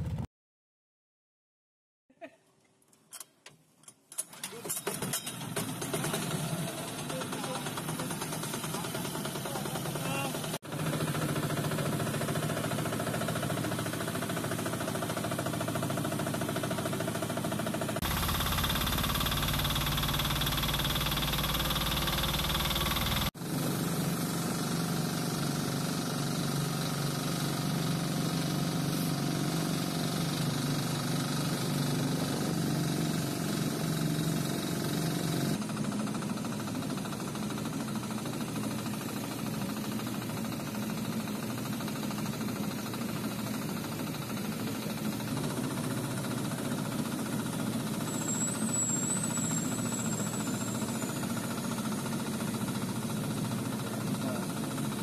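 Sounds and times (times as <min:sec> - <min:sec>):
boat engine running: 0:05.6 - 0:55.0.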